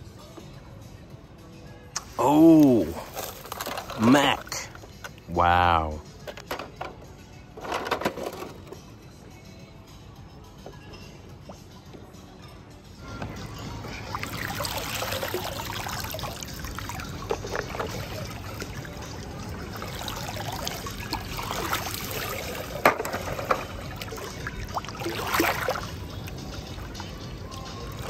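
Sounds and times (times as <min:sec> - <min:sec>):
water sloshing and splashing: 0:02.0 - 0:04.8, 0:13.8 - 0:28.0.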